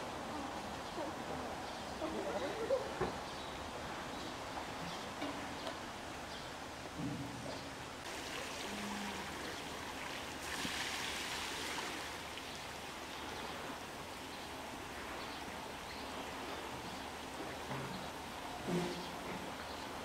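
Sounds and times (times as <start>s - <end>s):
rush of water: 0.0s - 20.0s
water running and splashing: 8.0s - 20.0s.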